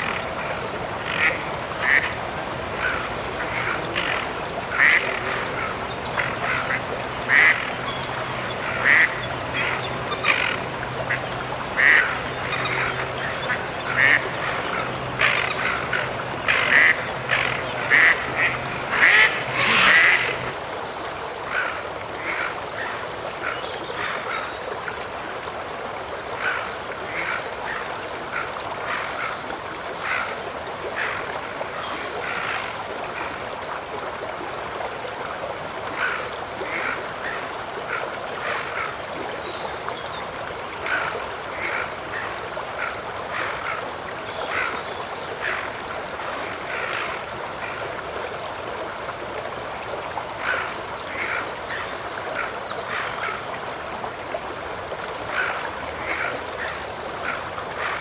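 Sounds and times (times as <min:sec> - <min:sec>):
ducks calling: 0:00.0 - 0:20.6.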